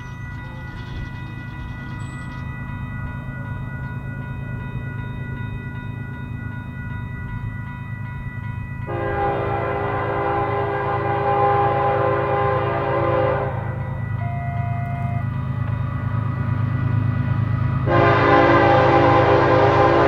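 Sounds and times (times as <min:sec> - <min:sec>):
train rumbling: 0:00.0 - 0:20.0
locomotive air horn blast: 0:08.9 - 0:13.8, 0:17.8 - 0:20.0
brief single tone: 0:14.2 - 0:15.9.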